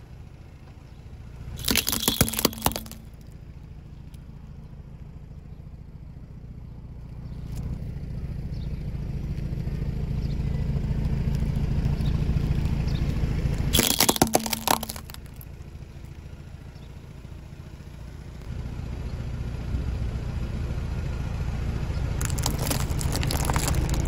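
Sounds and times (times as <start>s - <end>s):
car engine and tyre rumble: 0.0s - 24.0s
plastic toys cracking under tyre: 1.6s - 3.0s, 13.7s - 15.4s, 22.2s - 24.0s.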